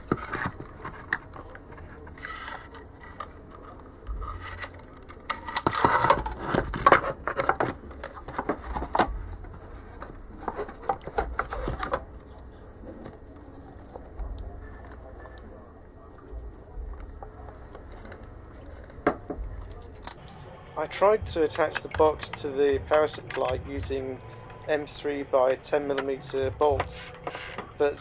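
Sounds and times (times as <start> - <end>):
plastic scraping on metal: 0.0 - 14.2, 25.5 - 28.0.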